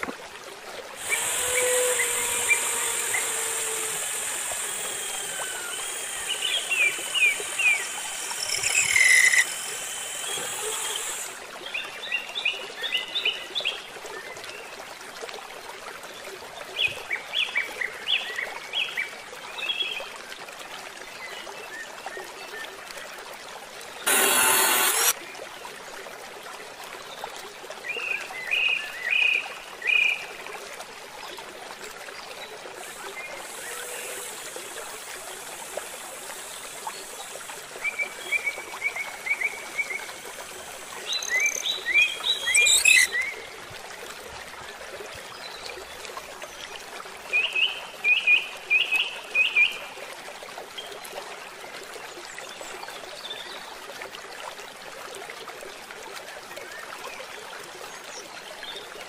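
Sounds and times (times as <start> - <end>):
running water hiss: 0.0 - 12.2, 24.0 - 25.2, 32.6 - 44.4
birds chirping: 35.5 - 43.4.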